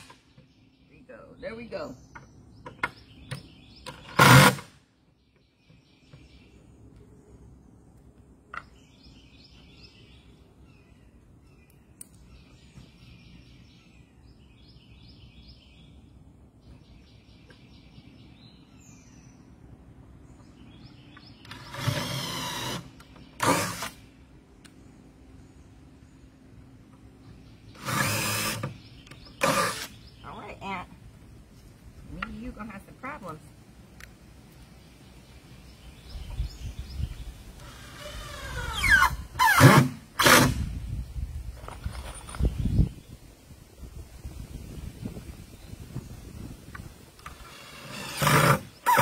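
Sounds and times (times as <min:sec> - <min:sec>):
bird chirping: 0:00.0 - 0:39.5, 0:40.8 - 0:43.4
cordless drill driving screws: 0:21.5 - 0:24.0, 0:27.8 - 0:28.8, 0:29.4 - 0:29.9, 0:37.6 - 0:40.6, 0:47.2 - 0:49.0.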